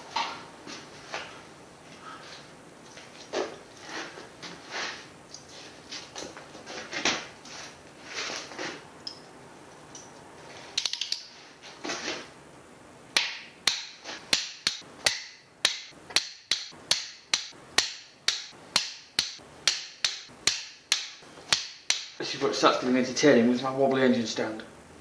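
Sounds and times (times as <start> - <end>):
scuffing handling noise: 0.0 - 8.9.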